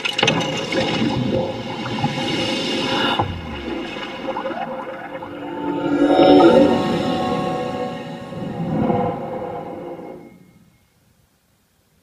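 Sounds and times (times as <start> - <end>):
held tones over low rumble: 3.2 - 10.8.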